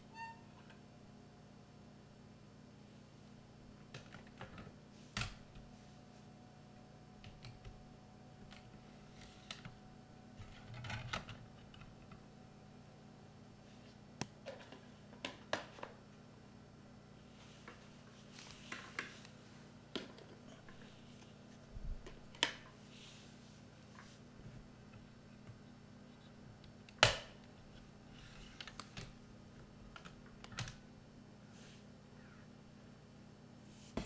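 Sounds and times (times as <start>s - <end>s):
steady low hum: 0.0s - 15.2s.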